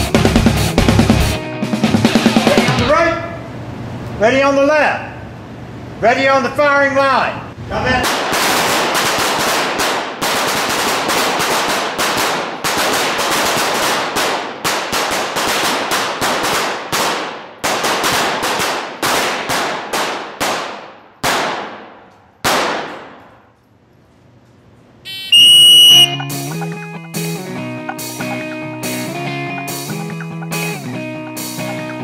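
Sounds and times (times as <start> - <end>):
pistol shots echoing indoors: 8.0 - 23.6.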